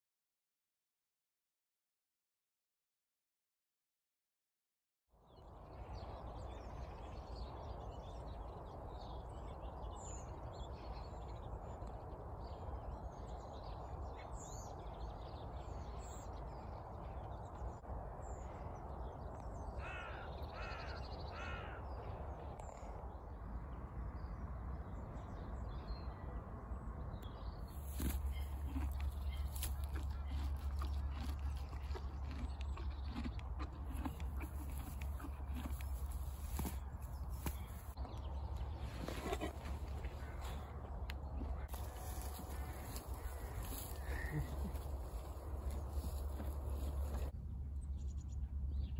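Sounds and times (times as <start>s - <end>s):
crow cawing: 19.8s - 21.9s
wind rumble on microphone: 21.8s - 48.9s.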